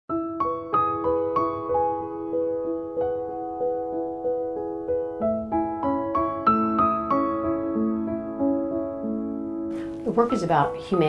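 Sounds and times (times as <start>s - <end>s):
gentle piano music: 0.1s - 11.0s.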